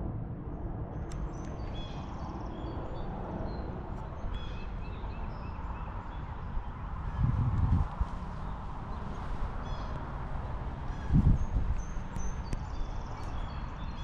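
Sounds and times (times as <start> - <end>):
wind rumble on microphone: 0.0 - 14.0
small birds chirping: 8.4 - 14.0.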